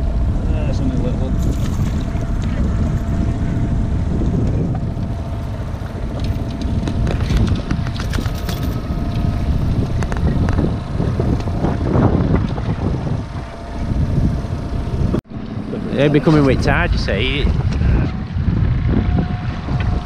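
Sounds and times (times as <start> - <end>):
wind buffeting microphone: 0.0 - 20.0
clicks and rattles of fish handling: 6.2 - 8.8.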